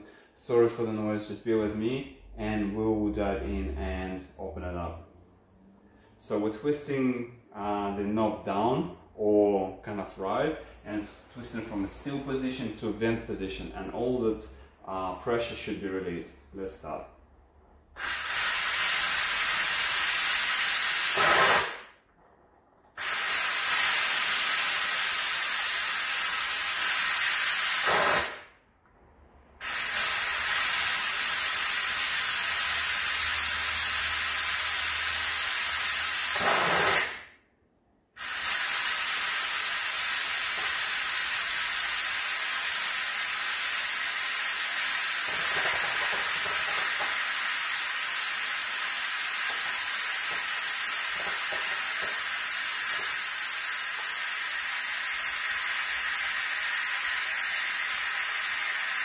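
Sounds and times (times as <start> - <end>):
steam hissing from pressure valve: 18.0 - 21.9, 23.0 - 28.5, 29.6 - 37.2, 38.2 - 59.0.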